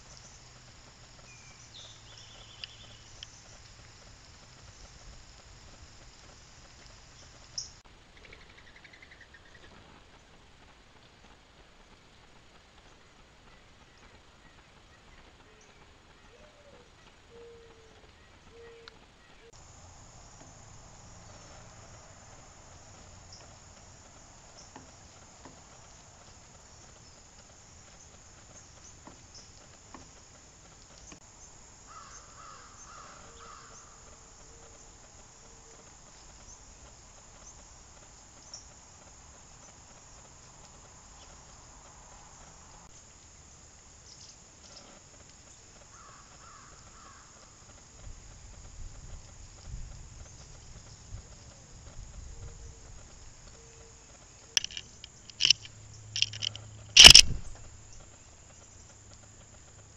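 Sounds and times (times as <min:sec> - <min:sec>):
bird calls: 0:07.2 - 0:09.8, 0:54.5 - 0:58.4.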